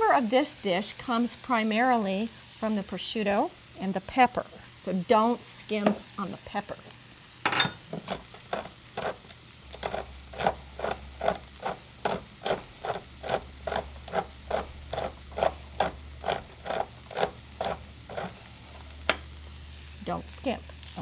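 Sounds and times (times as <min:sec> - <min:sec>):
pepper mill grinding: 0:07.8 - 0:19.2.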